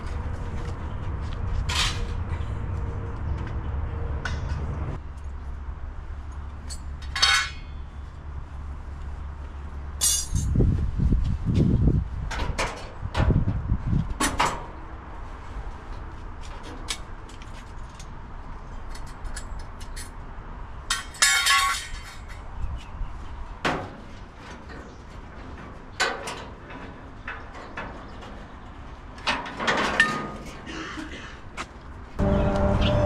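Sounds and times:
ringing metallic clatter: 10.0s - 10.6s.

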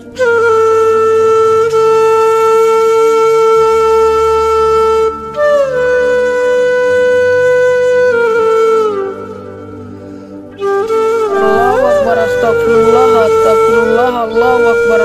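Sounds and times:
wind instrument long held notes: 0.0s - 15.0s
low drone: 11.2s - 15.0s.

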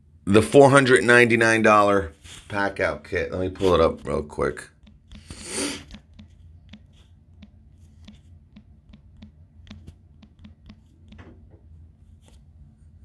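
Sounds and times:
low steady hum: 0.0s - 13.0s
fingertips tapping touchscreen: 3.6s - 12.5s.

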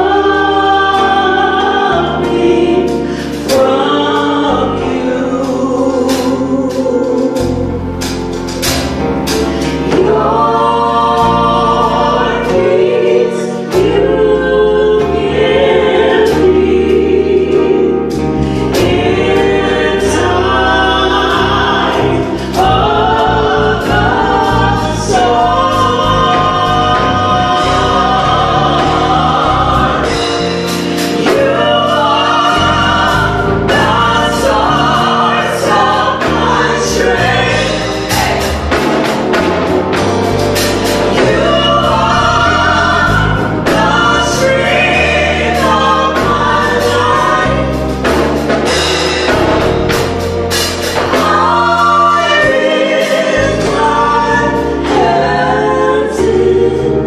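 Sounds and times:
vocal group singing in harmony: 0.0s - 57.0s.

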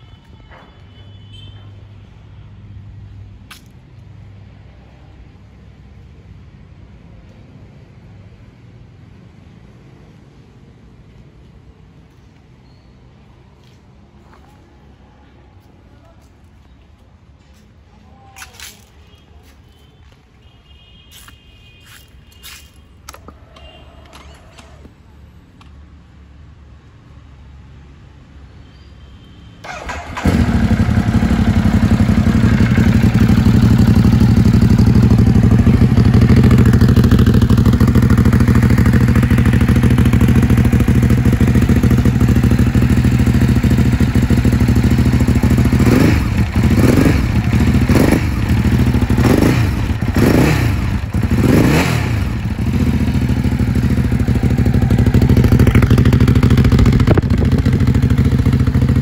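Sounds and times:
motorcycle engine idling and revving: 29.6s - 59.0s.

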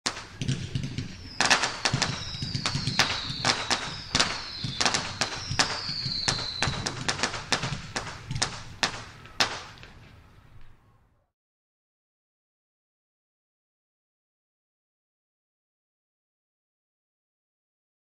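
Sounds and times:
fireworks popping and cracking: 0.0s - 10.2s
whistling screamer fireworks: 0.1s - 11.0s.

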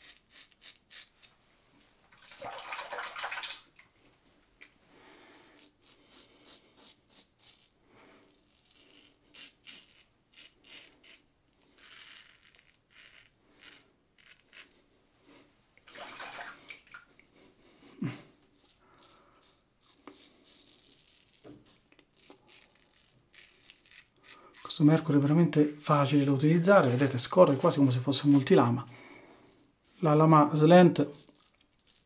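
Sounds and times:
razor scraping stubble: 0.0s - 1.4s, 5.6s - 14.8s, 18.5s - 25.7s, 29.4s - 32.0s.

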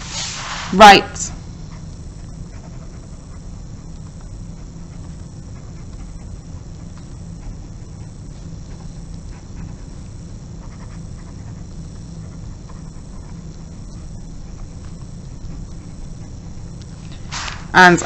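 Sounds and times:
low hum: 0.0s - 18.0s
pen scratching on paper: 10.6s - 13.5s.

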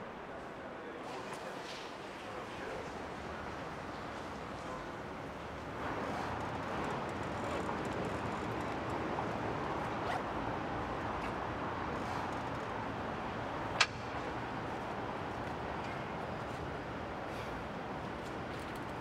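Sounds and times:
city traffic hum: 0.0s - 19.0s
sharp metallic click: 13.8s - 14.2s.

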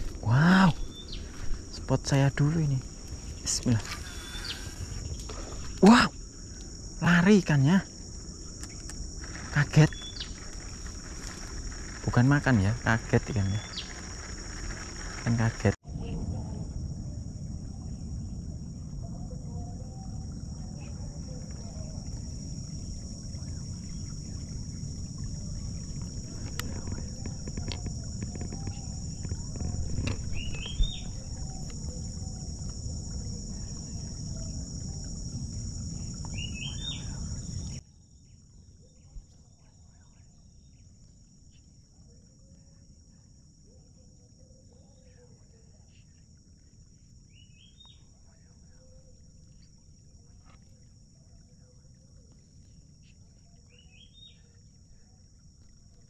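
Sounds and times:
insects droning: 0.0s - 56.0s
bird chirps: 3.9s - 5.2s, 9.9s - 10.4s, 13.4s - 14.0s, 30.2s - 31.7s, 36.3s - 37.7s
low rumble: 9.0s - 37.8s.

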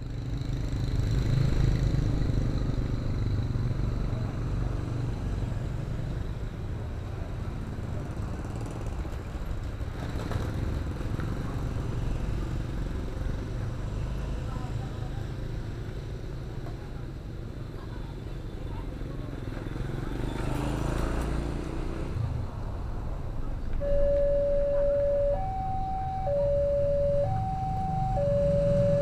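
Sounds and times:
low traffic rumble: 0.0s - 29.0s
motorcycles passing: 17.2s - 29.0s.

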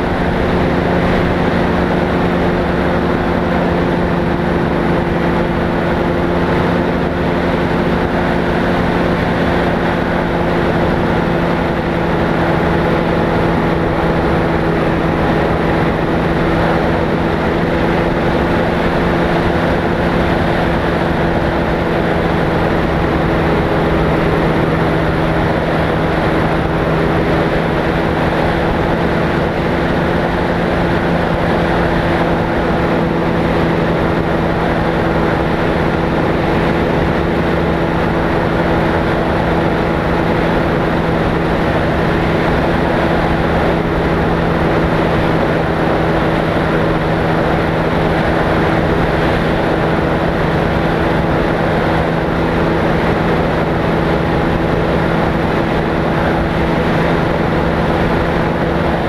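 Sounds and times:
aircraft engine and propeller: 0.0s - 59.0s.

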